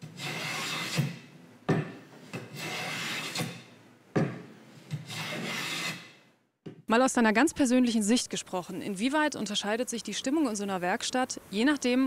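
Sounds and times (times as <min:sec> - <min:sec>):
hand plane rasping on wood: 0:05.1 - 0:06.0.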